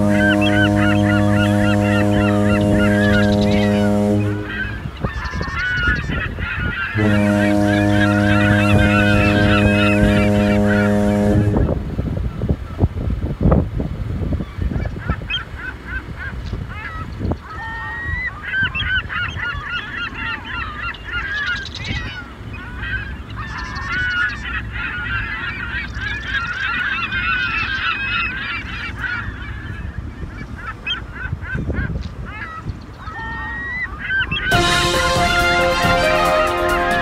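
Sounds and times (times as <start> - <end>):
waterbirds honking: 0.0 - 12.9, 14.4 - 37.0
low steady rumble: 0.0 - 17.4
music: 34.5 - 37.0.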